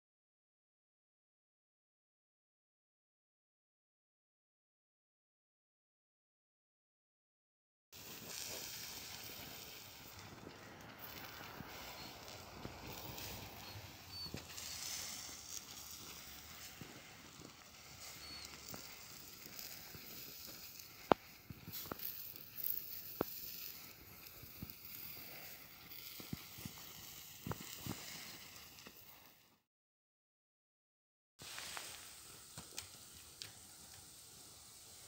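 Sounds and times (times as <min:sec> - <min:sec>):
fire crackles: 0:08.0 - 0:29.6, 0:31.4 - 0:35.0
pot simmering hiss: 0:08.0 - 0:29.6, 0:31.4 - 0:35.0.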